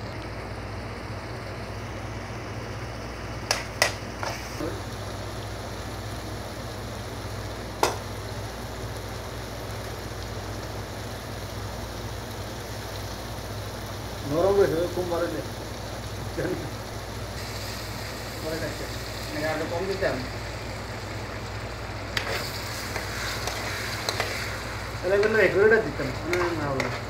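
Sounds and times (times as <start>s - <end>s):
curry simmering and bubbling: 15.6s - 27.0s.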